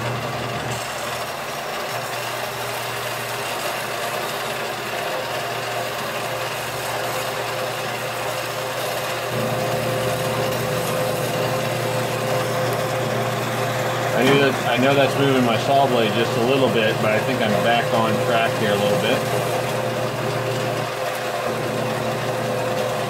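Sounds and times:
bandsaw cutting metal: 0:00.0 - 0:23.0
steady whine: 0:05.3 - 0:23.0.

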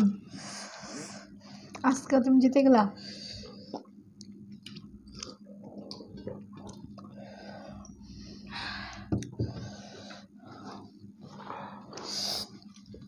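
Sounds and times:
chewing: 0:03.6 - 0:07.2.

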